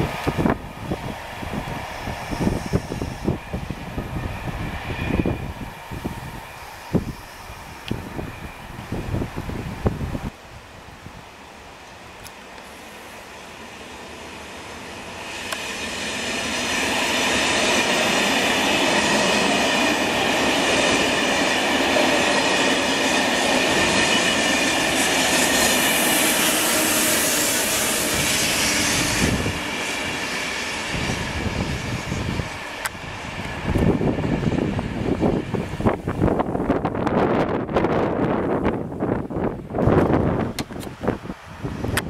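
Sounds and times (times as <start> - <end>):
train wheels running over rails: 11.8 - 42.0.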